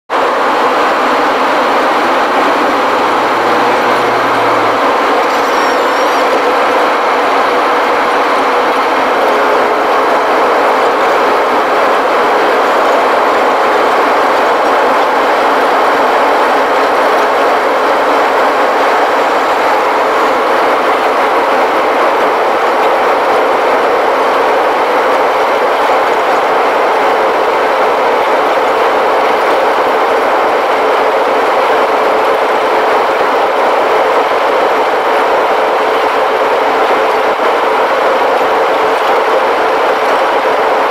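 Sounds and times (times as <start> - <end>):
jet engine and airflow rush: 0.1 - 40.9
steady cabin hum: 0.3 - 13.7.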